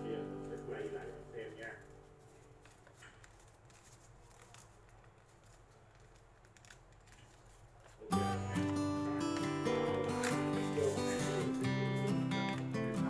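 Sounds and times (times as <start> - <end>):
music: 0.0 - 1.9, 8.1 - 13.0
paper rustling and creasing: 0.0 - 13.0.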